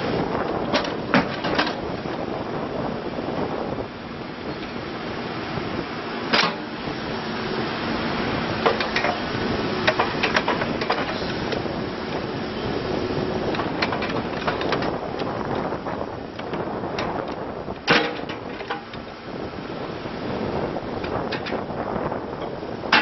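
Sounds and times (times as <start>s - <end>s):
diesel engine running: 0.0s - 23.0s
hydraulics working: 0.0s - 23.0s
metal bucket clanks: 6.3s - 6.7s, 17.9s - 18.9s.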